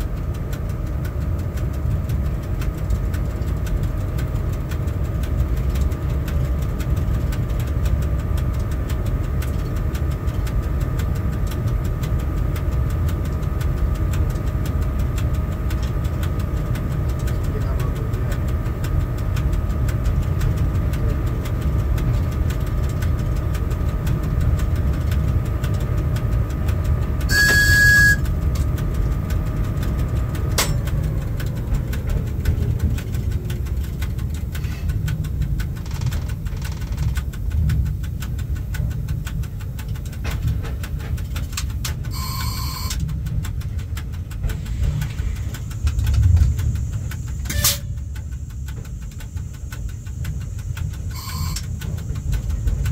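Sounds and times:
locomotive running gear rumble: 0.0 - 52.9
steady hum: 0.0 - 52.9
tone falling in pitch: 27.3 - 28.2
short high-pitched beeps: 27.3 - 28.3, 42.1 - 43.0, 51.1 - 51.8.

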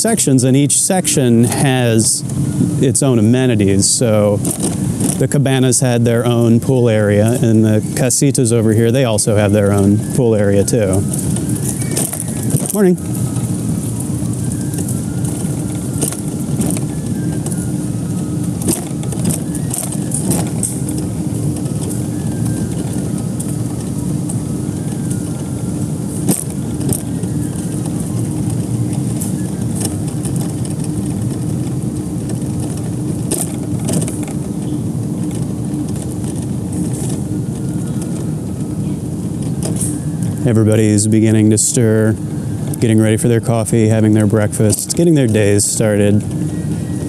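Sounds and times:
low mechanical rumble: 0.0 - 47.0
footsteps on pavement: 3.5 - 40.6.

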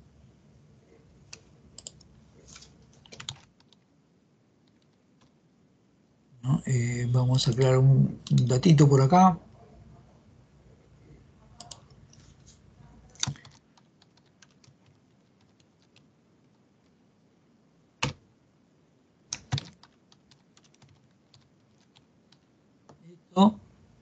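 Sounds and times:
keyboard typing: 1.2 - 3.9, 4.6 - 5.4, 11.5 - 12.3, 13.0 - 17.0, 18.0 - 18.2, 19.3 - 22.5.

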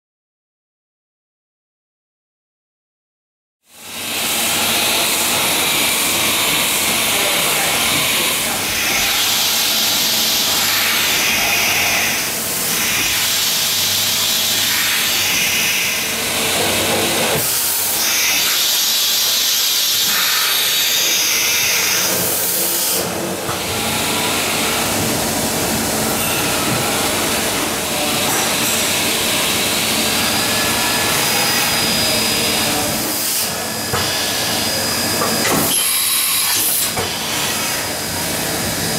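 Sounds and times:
machine hissing: 4.0 - 38.3.

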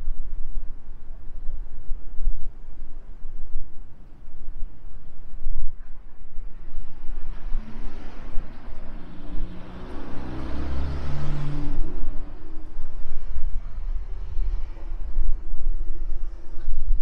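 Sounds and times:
car driving past: 6.6 - 16.8.

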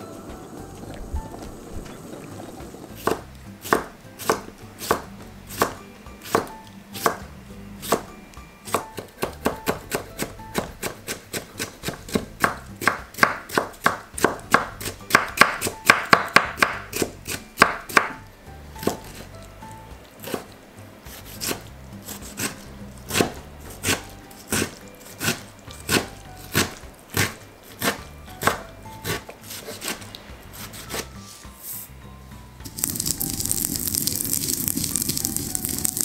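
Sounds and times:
knife cutting on wooden board: 2.9 - 7.2, 21.1 - 31.8.

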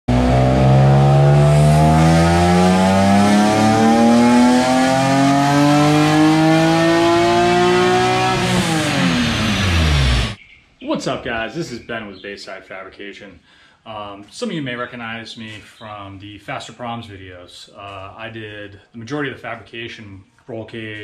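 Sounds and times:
race car engine revving: 0.0 - 10.4.

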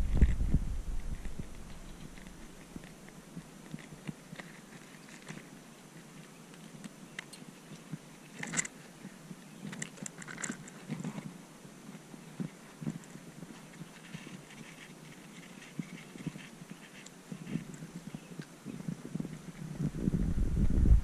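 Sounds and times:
camera handling clicks and rustles: 1.1 - 8.8, 9.4 - 11.3.

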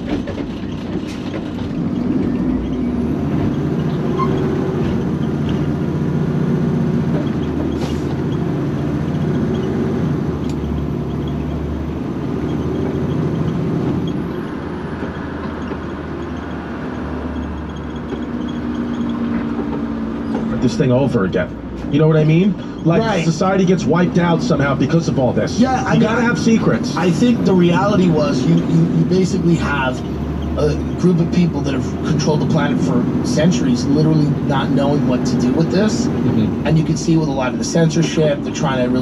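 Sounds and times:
truck engine from inside cab: 0.0 - 39.0.

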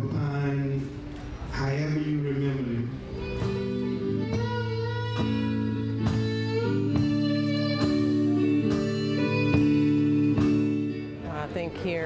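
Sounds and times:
blues guitar and bass: 0.0 - 12.0
bowed violin long notes: 2.5 - 12.0.

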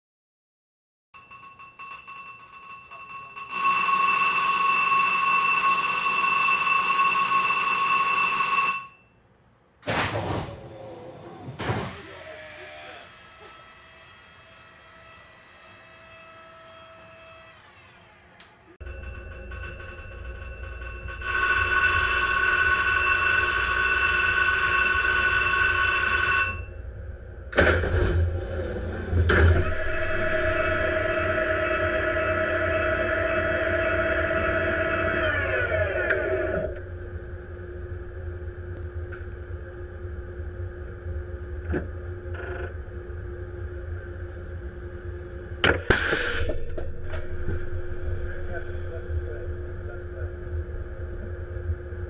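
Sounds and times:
electric alarm bell ringing: 1.2 - 9.2, 18.8 - 26.8, 28.9 - 36.8
high machine whine: 10.6 - 52.0
compressed air blast: 45.8 - 46.6.

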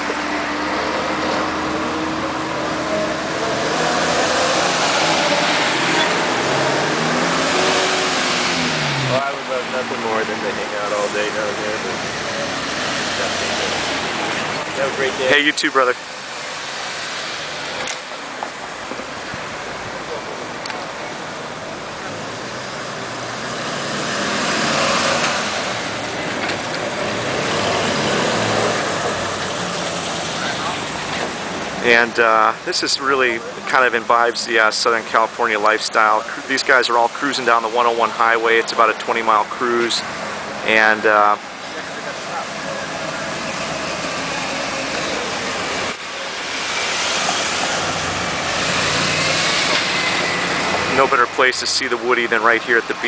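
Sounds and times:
cars driving past: 0.0 - 53.0
tyre and road noise: 0.0 - 53.0.

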